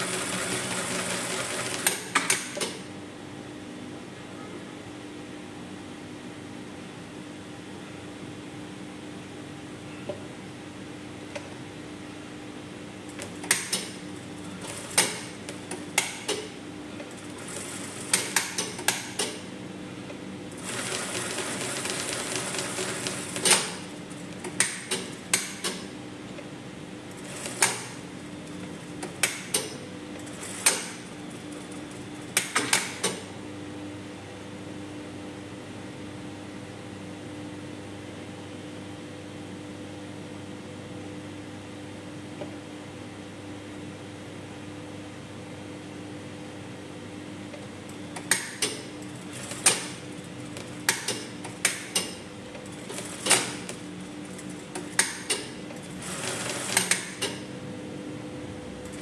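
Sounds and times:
sewing machine stitching: 0.0s - 2.7s, 20.6s - 23.8s.

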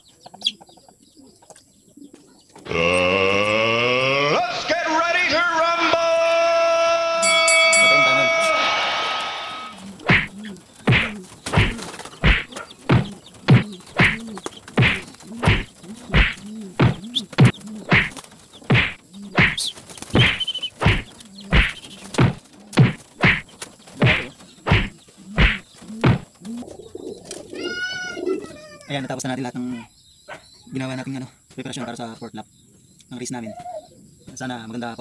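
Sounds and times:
pigeon wing slaps: 9.7s - 26.6s.

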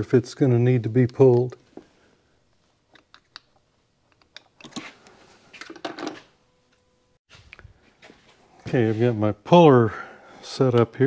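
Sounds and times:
small tools and metal parts clattering: 4.1s - 6.3s.

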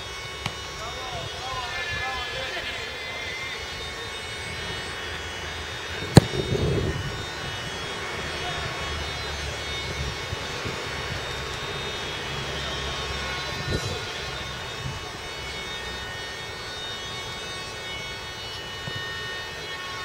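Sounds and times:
football kick thud: 6.2s - 6.5s.

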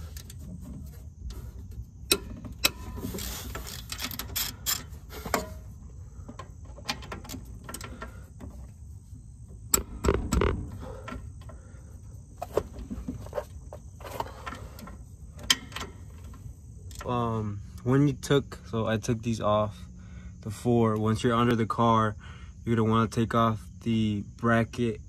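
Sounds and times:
metal clicks and knocks: 2.1s - 5.7s, 6.3s - 8.6s, 9.7s - 11.6s, 14.2s - 17.1s.

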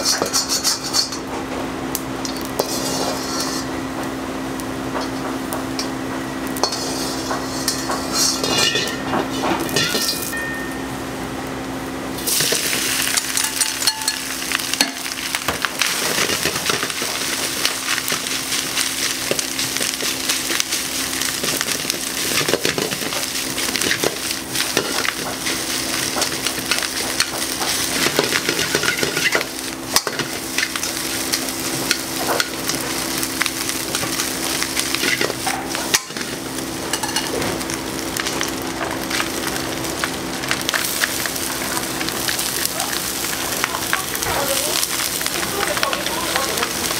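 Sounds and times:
metal tongs scraping a pan: 0.0s - 1.2s, 2.3s - 3.7s, 6.5s - 10.4s, 12.3s - 14.2s, 21.4s - 32.9s, 34.8s - 37.4s
meat sizzling in a wok: 0.0s - 46.9s.

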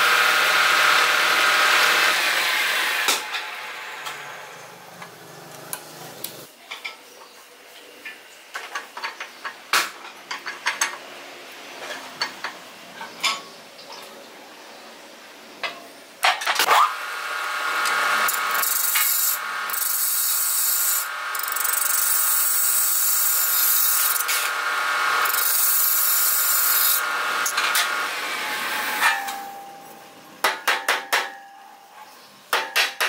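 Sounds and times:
lathe motor hum: 17.0s - 28.9s.

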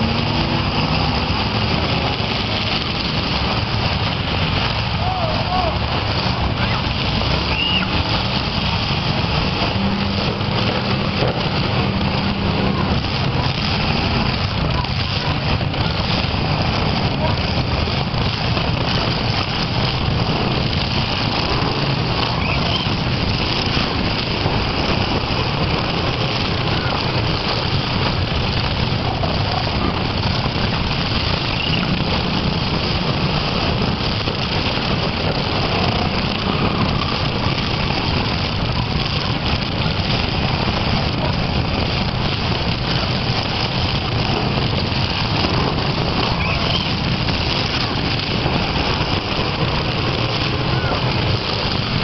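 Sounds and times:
car engines running: 0.0s - 52.0s
faint spectator voices: 50.5s - 51.4s.

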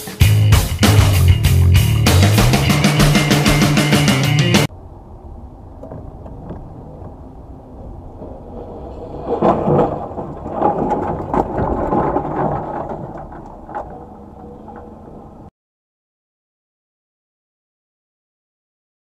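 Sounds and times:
road rumble: 0.0s - 15.5s
knocks and rattling: 5.4s - 15.5s.

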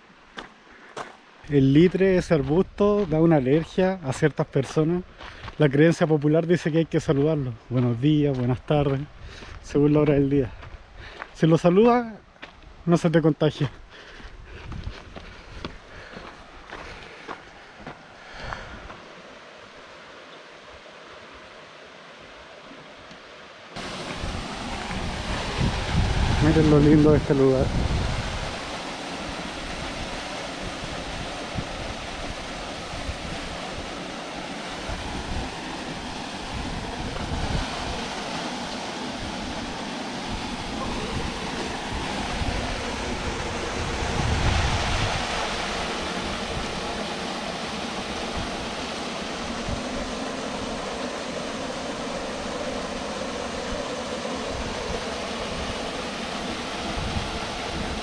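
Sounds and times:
wind buffeting microphone: 14.2s - 16.2s, 23.8s - 58.0s.

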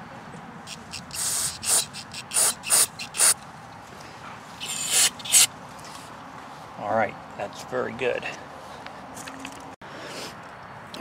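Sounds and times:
hissing spray bursts: 0.7s - 3.4s, 4.6s - 5.5s.

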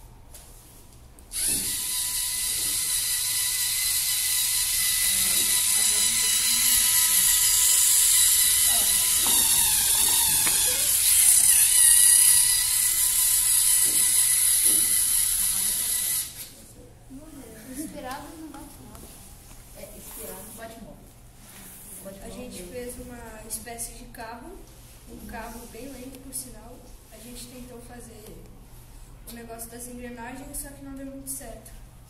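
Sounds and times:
robot motors whining with gear noise: 1.3s - 16.4s.

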